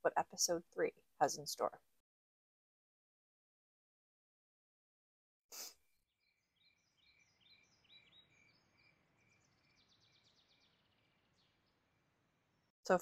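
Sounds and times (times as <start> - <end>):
birds chirping and trilling: 6.4 - 12.0.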